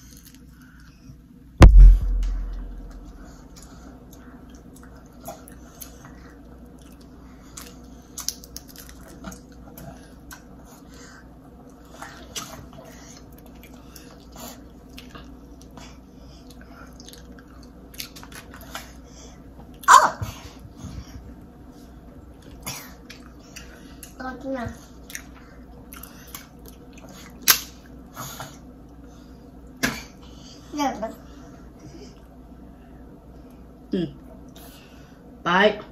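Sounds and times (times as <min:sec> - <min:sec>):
short loud sound: 0:01.6 - 0:03.0
wet eating and lip smacking: 0:02.6 - 0:10.9, 0:11.6 - 0:19.0, 0:24.8 - 0:28.0.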